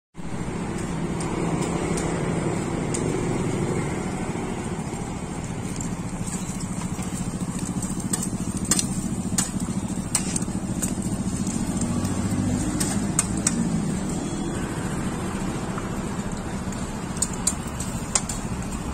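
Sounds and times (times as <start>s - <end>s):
road traffic engines: 0.2s - 18.9s
sharp clicks and taps: 5.6s - 14.0s, 15.7s - 18.9s.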